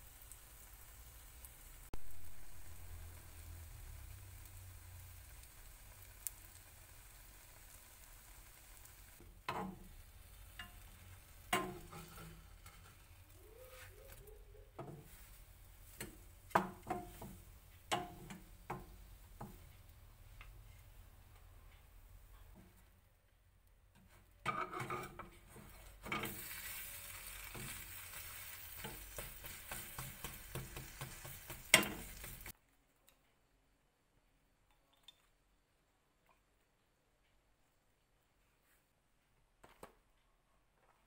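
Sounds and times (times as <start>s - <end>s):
bread sizzling in a pan: 0.0s - 14.2s, 14.8s - 20.4s, 24.5s - 32.6s
spatula and chopsticks scraping pan: 9.4s - 14.2s, 24.4s - 32.5s.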